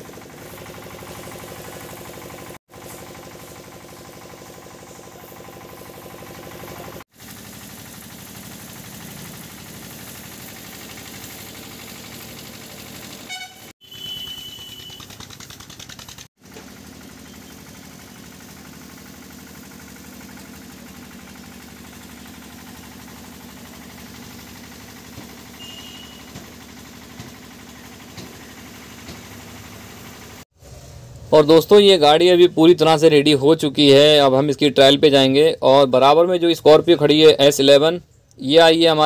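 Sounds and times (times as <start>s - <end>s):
pressure washer spraying water: 0.0s - 30.4s
vehicle horn honking: 13.3s - 15.1s, 25.6s - 26.3s.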